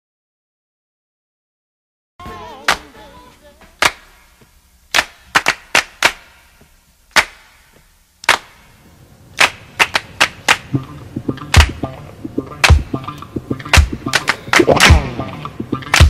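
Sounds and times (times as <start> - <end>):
sharp cracks or pops: 3.8 - 4.3, 4.9 - 6.4, 7.1 - 8.7, 9.4 - 10.8, 11.4 - 11.8, 12.6 - 15.2.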